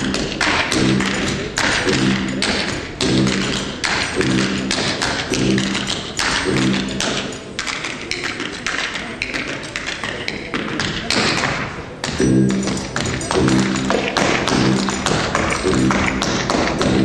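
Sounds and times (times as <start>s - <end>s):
background music: 0.0s - 10.6s, 11.5s - 17.0s
tap shoes on stage floor: 0.0s - 17.0s.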